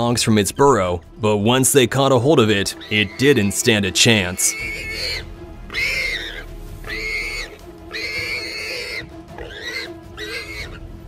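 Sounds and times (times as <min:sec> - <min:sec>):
warthog squealing in distress: 0:02.7 - 0:10.8.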